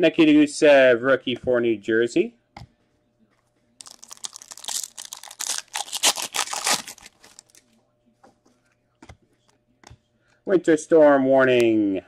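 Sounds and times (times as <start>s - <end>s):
wrapper tearing and crinkling: 3.8s - 7.6s.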